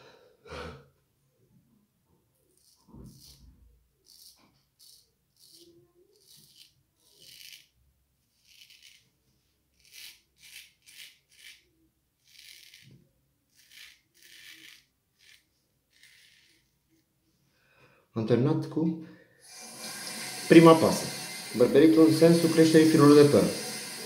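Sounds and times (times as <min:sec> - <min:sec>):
straight razor scraping stubble: 0:02.5 - 0:07.7, 0:08.4 - 0:09.1, 0:09.8 - 0:16.6.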